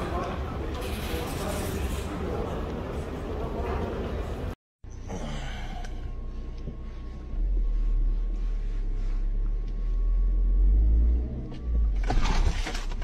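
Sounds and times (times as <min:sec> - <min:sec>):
low rumble inside car cabin: 0:04.9 - 0:12.0.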